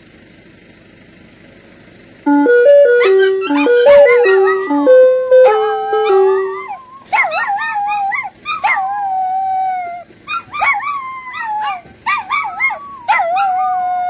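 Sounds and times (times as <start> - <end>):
ice cream truck jingle: 2.2 - 9.1
small dog howling: 5.4 - 14.0.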